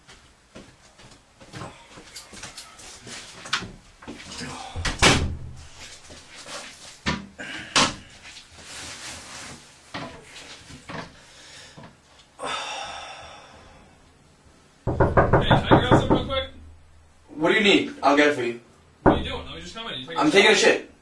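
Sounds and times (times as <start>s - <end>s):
knocks and thumps: 14.9s - 16.8s, 19.0s - 19.8s.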